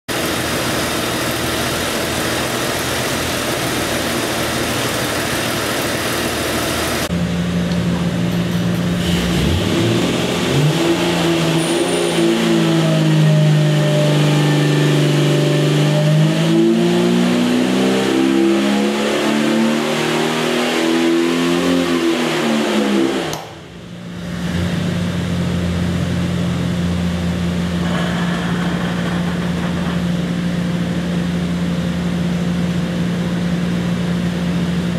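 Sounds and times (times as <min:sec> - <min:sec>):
engine revving on dyno: 0:08.6 - 0:34.9.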